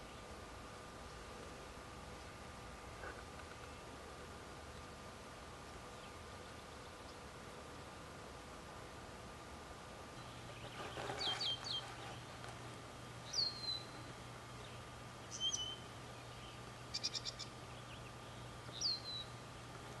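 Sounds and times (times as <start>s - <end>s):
bird whistles slurring downward: 15.3s - 15.9s.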